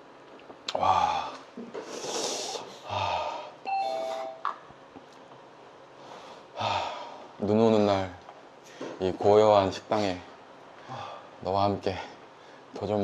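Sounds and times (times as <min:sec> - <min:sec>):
two-note door chime: 0:03.7 - 0:04.4.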